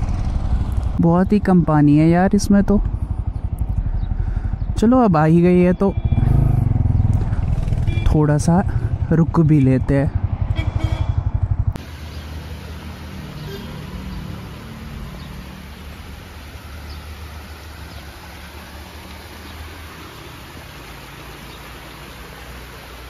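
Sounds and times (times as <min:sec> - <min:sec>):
vehicle engine humming: 0:00.0 - 0:23.0
outdoor hiss: 0:11.8 - 0:23.0.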